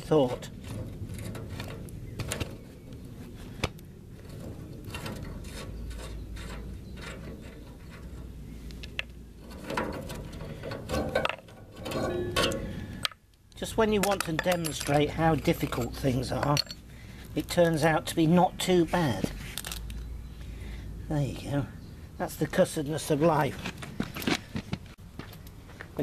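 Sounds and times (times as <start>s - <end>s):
metal clicks and scrapes of nut: 0.4s - 3.0s, 3.6s - 16.8s, 19.4s - 20.1s.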